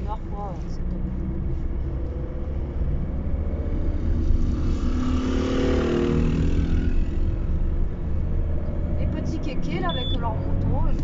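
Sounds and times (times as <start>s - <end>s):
road rumble inside moving car: 0.0s - 11.0s.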